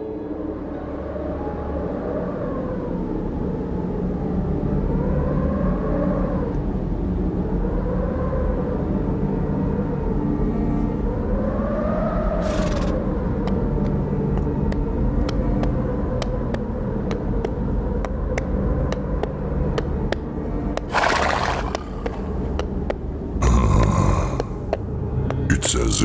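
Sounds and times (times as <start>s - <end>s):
breathy bursts: 23.4s - 24.7s.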